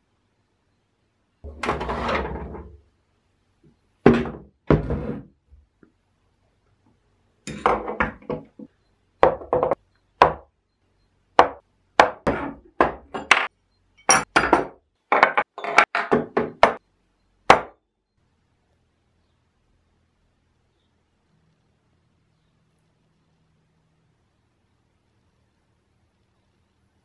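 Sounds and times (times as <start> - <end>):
metal tools knocking on wood: 7.5 - 10.4, 11.4 - 16.8.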